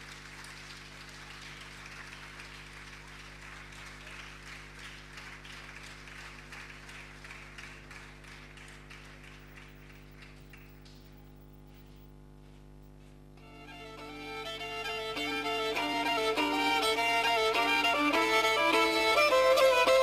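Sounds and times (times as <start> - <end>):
audience applause: 0.0 - 11.2, 14.0 - 20.0
steady low hum: 5.8 - 20.0.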